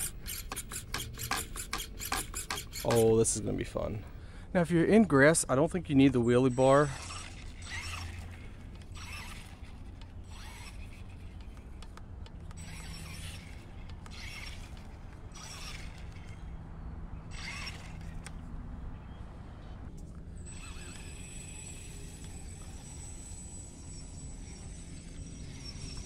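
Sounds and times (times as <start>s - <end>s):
rc truck motor hissing: 0.0s - 4.1s, 6.7s - 16.5s, 17.3s - 18.4s, 20.3s - 26.0s.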